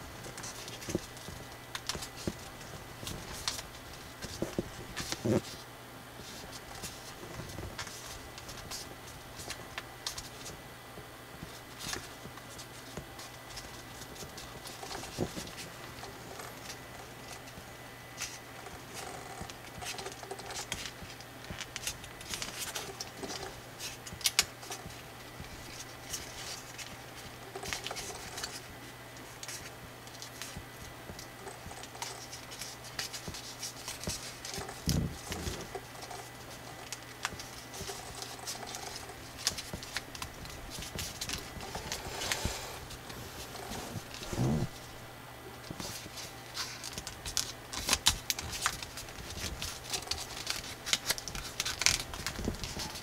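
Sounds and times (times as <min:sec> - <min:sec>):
faint low hum: 0:00.0 - 0:53.0
paper crinkling and rustling: 0:00.2 - 0:05.6, 0:06.2 - 0:10.6, 0:11.4 - 0:45.0, 0:45.6 - 0:53.0
paper crease clicks: 0:45.7 - 0:53.0.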